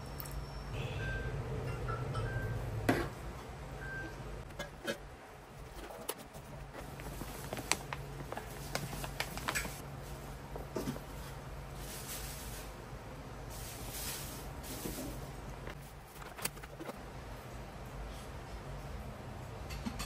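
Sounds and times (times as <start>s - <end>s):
steady low hum: 0.7s - 19.2s
plastic bag crinkling: 5.6s - 9.8s, 15.6s - 17.0s.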